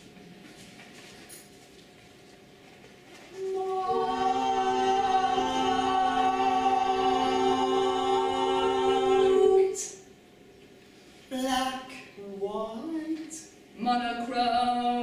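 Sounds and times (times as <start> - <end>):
women singing unaccompanied: 3.4 - 10.0, 12.2 - 15.0.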